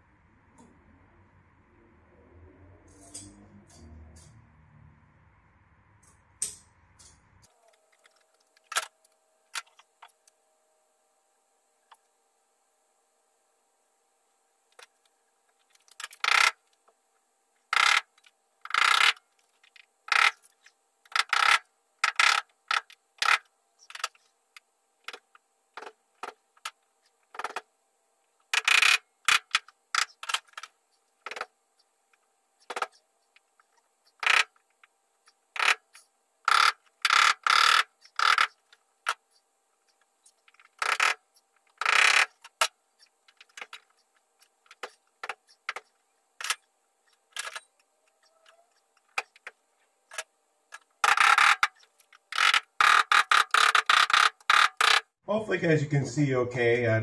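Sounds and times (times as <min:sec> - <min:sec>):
faint steady hum: 0:00.0 - 0:57.0
screwdriver scraping metal: 0:35.2 - 0:39.4.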